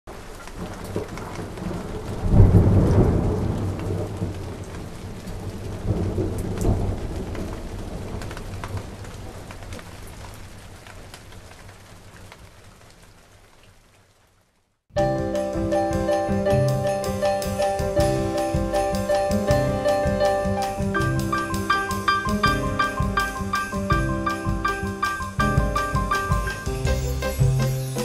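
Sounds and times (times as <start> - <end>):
steady rain: 0.1 - 28.0
thunder rumbling: 0.5 - 10.0, 15.0 - 27.8.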